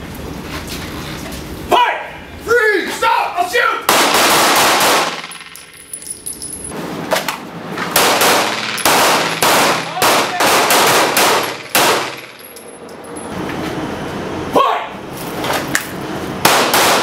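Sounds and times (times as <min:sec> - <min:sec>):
handgun shots echoing indoors: 0:03.9 - 0:05.7, 0:07.9 - 0:12.6, 0:16.4 - 0:17.0.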